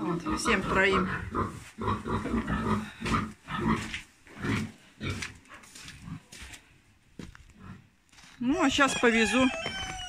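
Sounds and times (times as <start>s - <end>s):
livestock grunting: 0.0s - 5.3s.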